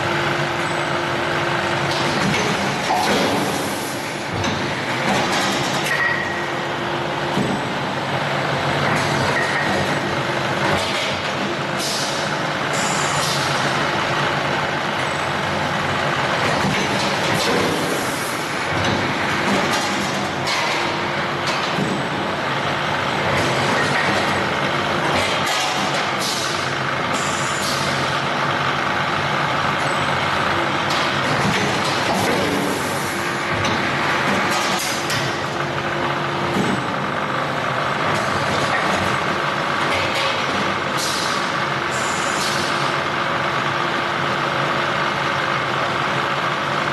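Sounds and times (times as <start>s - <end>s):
die-casting machine hum: 0.0s - 46.9s
short pneumatic hisses: 11.8s - 13.4s.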